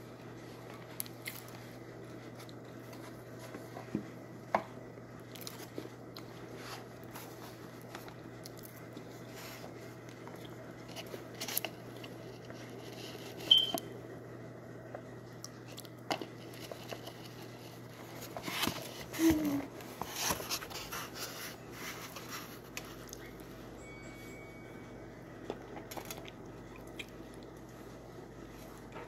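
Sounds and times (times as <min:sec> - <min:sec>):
steady low hum: 0:00.0 - 0:29.0
mouth chewing crunchy food: 0:25.6 - 0:27.8.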